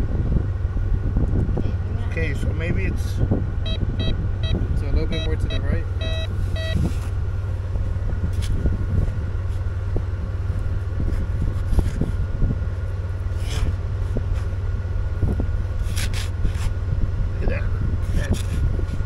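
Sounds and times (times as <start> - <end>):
steady low rumble: 0.0 - 19.0
metal detector beeping: 3.6 - 6.9.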